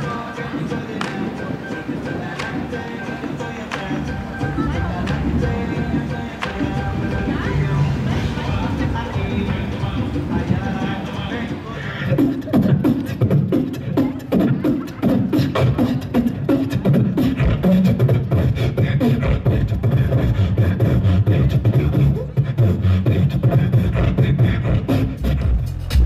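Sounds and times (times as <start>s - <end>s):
swooping pitched sounds: 0.0s - 19.9s
man beatboxing into microphone: 0.0s - 26.0s.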